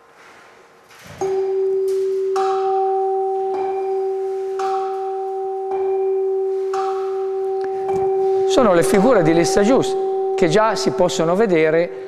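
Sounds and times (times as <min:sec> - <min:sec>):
mallet striking tuning fork: 0:01.2 - 0:12.0
tuning forks ringing: 0:01.2 - 0:12.0.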